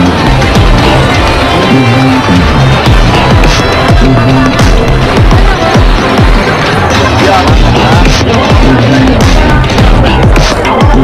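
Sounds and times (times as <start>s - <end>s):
deep kick drum: 2.8s - 6.4s, 7.5s - 11.0s.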